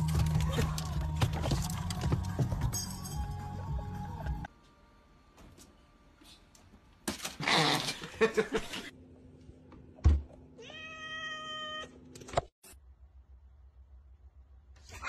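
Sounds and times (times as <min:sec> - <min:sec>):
cat meowing: 0:10.6 - 0:11.9.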